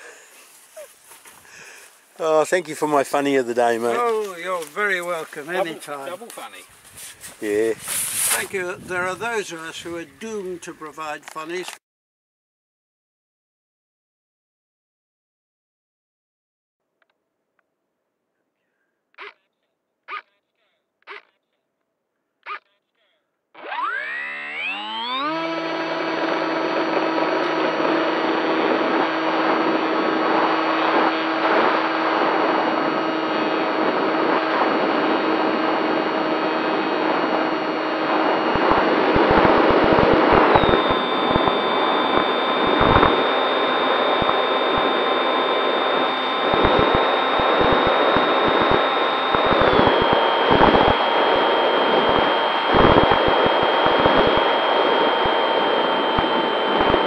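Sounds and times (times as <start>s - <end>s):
electric motor and propeller whine: 23.6s - 57.0s.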